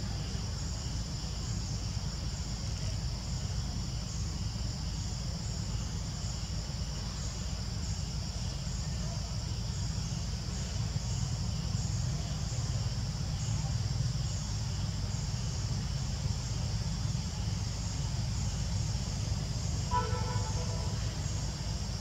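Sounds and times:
continuous low rumble: 0:00.0 - 0:22.0
insects chirring: 0:00.0 - 0:22.0
brief pitched call: 0:19.9 - 0:21.2.

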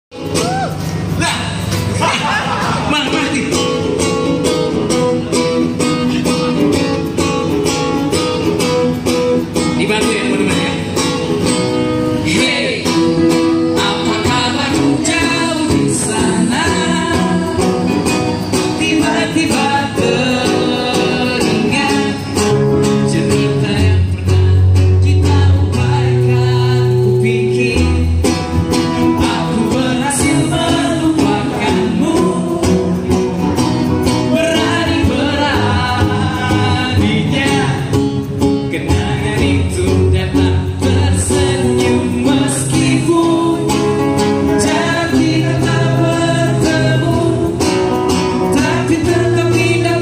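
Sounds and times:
acoustic guitars strumming: 0:00.1 - 0:50.0
cajon beat: 0:00.1 - 0:50.0
man singing: 0:01.5 - 0:50.0.

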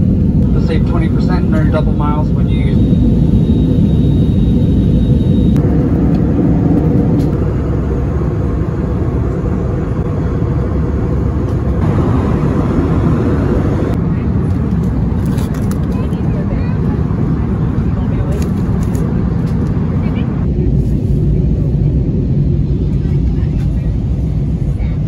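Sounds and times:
jet engine drone: 0:00.0 - 0:25.0
air rushing past fuselage: 0:02.8 - 0:15.2.

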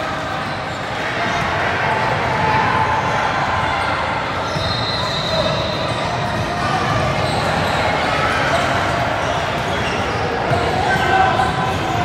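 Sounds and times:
echoing gym crowd din: 0:00.0 - 0:12.0.

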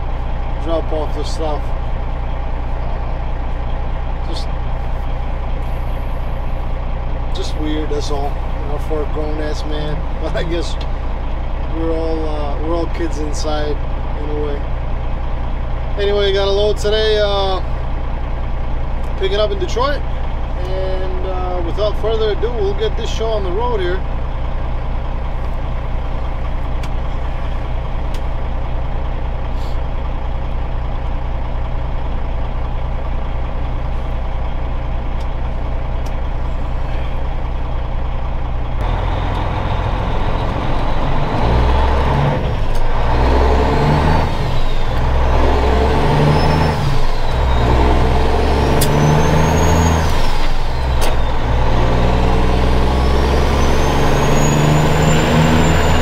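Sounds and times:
diesel truck engine: 0:00.0 - 0:56.0
high turbo whistle: 0:43.2 - 0:56.0.

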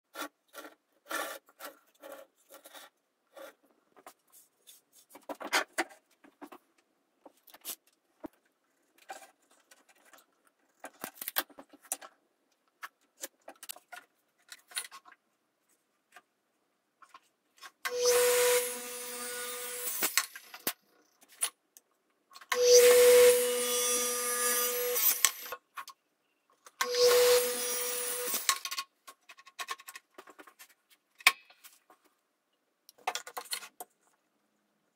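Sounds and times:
miter saw cutting wood: 0:17.9 - 0:20.6, 0:22.5 - 0:25.5, 0:26.8 - 0:28.6.

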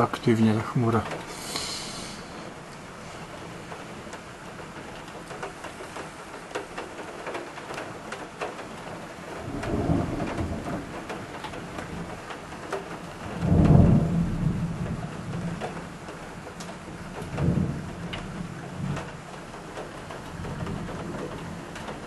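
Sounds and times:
heavy rain: 0:00.0 - 0:22.0
raindrops ticking on window: 0:00.0 - 0:22.0
thunder rumbling: 0:09.2 - 0:22.0.

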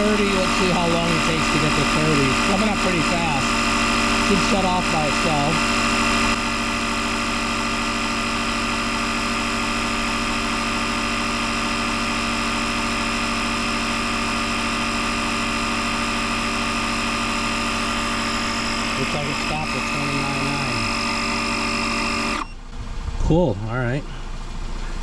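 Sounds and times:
air compressor droning: 0:00.0 - 0:25.0.

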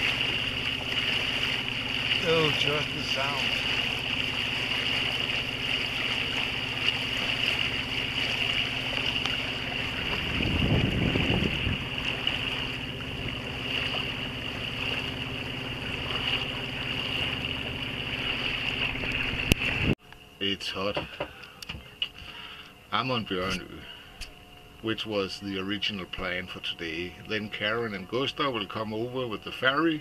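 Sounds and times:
water rushing past hull: 0:00.0 - 0:20.0
diesel boat engine running: 0:00.0 - 0:30.0.

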